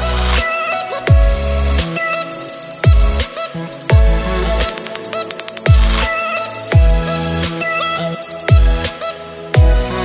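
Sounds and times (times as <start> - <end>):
fast hi-hat ticks: 0.0 - 10.0
deep bass hits: 3.9 - 4.8, 6.7 - 7.4.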